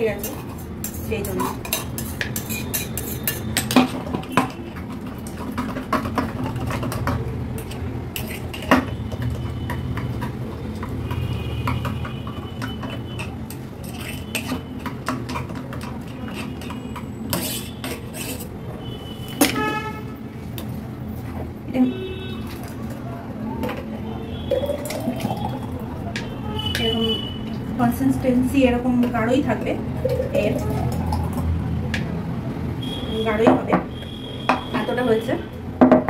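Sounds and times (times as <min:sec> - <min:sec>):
spatula scraping steel jar: 0:00.0 - 0:03.8, 0:07.6 - 0:08.7, 0:12.6 - 0:15.0, 0:15.8 - 0:18.6
spoon stirring in glass jug: 0:00.0 - 0:18.6, 0:24.3 - 0:27.7, 0:30.0 - 0:31.5.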